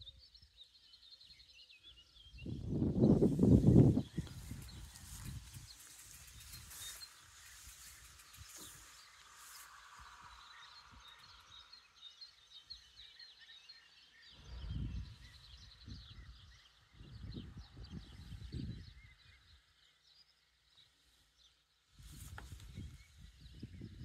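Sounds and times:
birds chirping: 0:00.0 - 0:24.0
wind gusts on microphone: 0:02.1 - 0:11.7, 0:14.3 - 0:19.6, 0:22.0 - 0:24.0.

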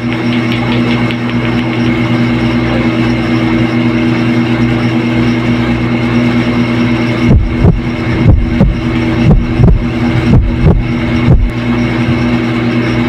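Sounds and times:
low droning hum: 0:00.0 - 0:13.0
heavy low thump: 0:07.3 - 0:11.5.

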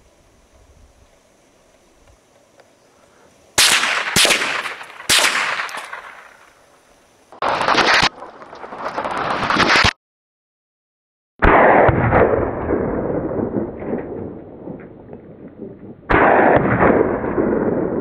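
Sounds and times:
rifle shots echoing: 0:03.6 - 0:06.6, 0:11.4 - 0:14.3, 0:16.1 - 0:18.0.

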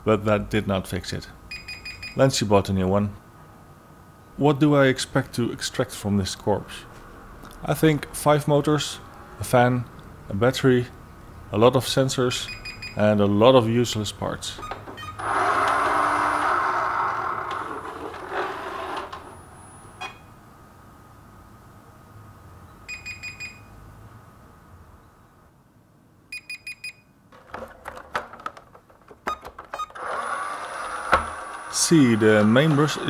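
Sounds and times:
short electronic beeps: 0:01.5 - 0:02.2, 0:12.5 - 0:13.0, 0:22.9 - 0:23.7, 0:26.3 - 0:27.1
robot vacuum whining: 0:15.2 - 0:19.2, 0:29.9 - 0:33.0
knocks of unit being handled: 0:27.4 - 0:29.8.

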